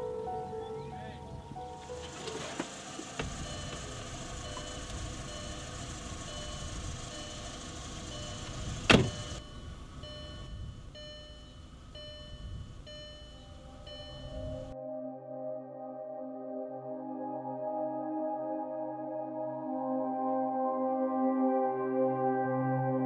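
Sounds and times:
outdoor background noise: 0.0 - 14.8
car door warning chime beeping: 1.3 - 14.8.

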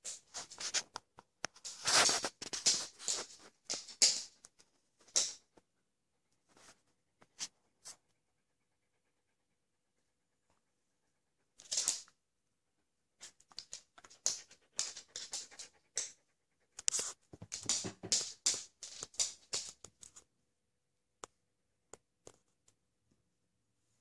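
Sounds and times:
dog panting: 8.0 - 10.4, 14.0 - 17.2.

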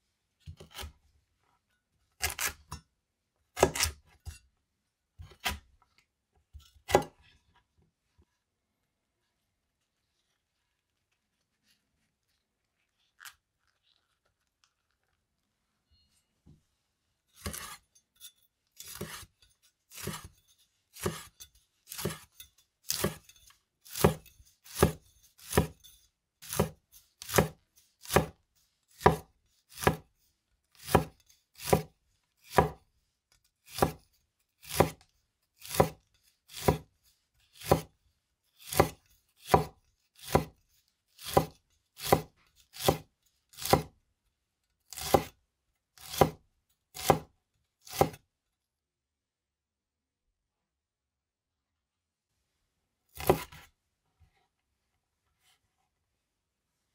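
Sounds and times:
cleaver chopping on wooden board: 3.6 - 4.0, 17.4 - 17.8, 19.9 - 20.3, 21.0 - 21.3, 21.9 - 22.3, 22.9 - 23.2, 23.9 - 25.8, 26.4 - 28.4, 29.0 - 30.1, 30.8 - 31.9, 32.5 - 32.8, 33.7 - 34.0, 34.6 - 35.0, 35.6 - 36.9, 37.6 - 37.9, 38.6 - 40.6, 41.2 - 43.9, 44.9 - 45.3, 46.0 - 46.4, 47.0 - 47.3, 47.9 - 48.2, 53.2 - 53.6.

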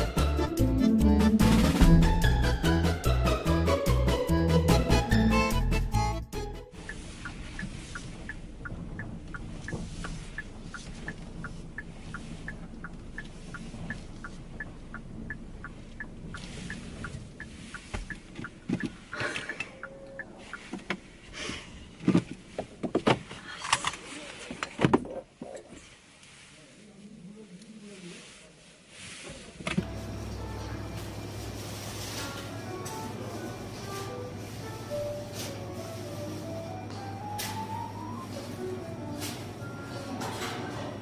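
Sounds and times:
car cabin hum: 6.7 - 21.2, 29.8 - 30.8
car indicator ticking: 6.8 - 21.0.

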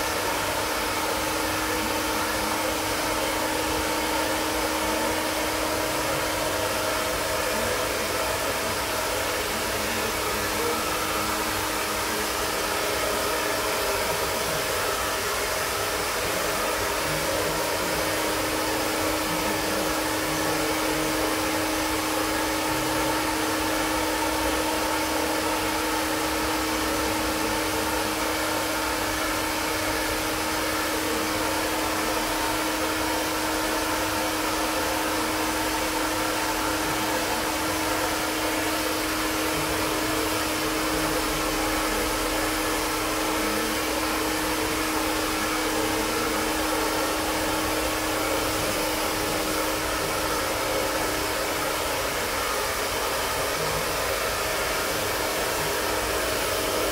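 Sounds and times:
handheld blower fan whirring: 0.0 - 56.9.

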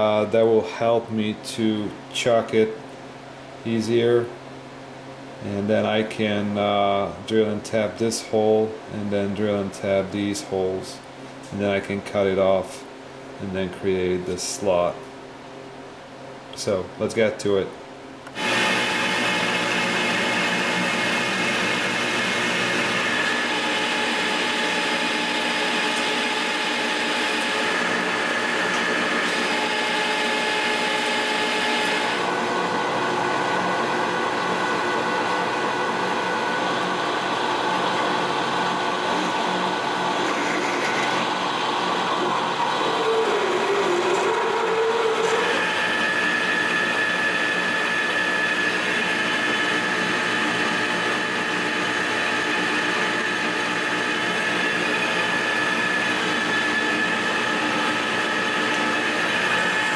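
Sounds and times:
metal lathe gear whine: 18.3 - 59.9.

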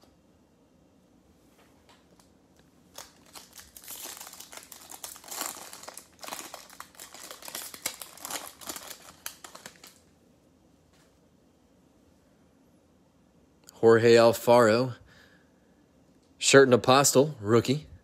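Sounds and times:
foil wrapper tearing and crumpling: 2.9 - 10.0.

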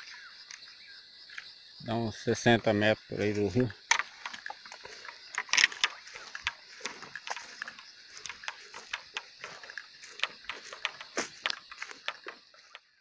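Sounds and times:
crickets chirping: 0.0 - 13.0
footsteps through grass and brush: 3.2 - 13.0.

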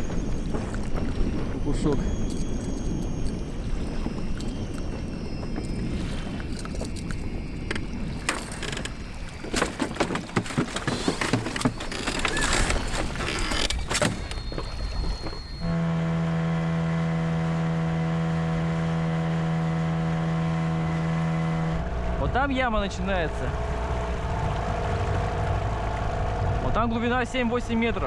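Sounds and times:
knocks and clatter on a boat: 0.0 - 15.8
outboard motor running: 0.0 - 28.0
water noise: 0.0 - 28.0
wind: 0.0 - 28.0.

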